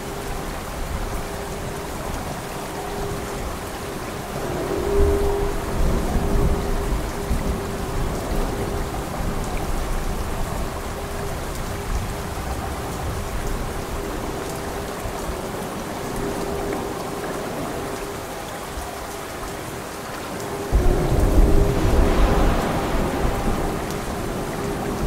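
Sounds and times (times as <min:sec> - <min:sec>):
heavy rain falling: 0:00.0 - 0:25.0
thunder rumbling: 0:20.7 - 0:25.0.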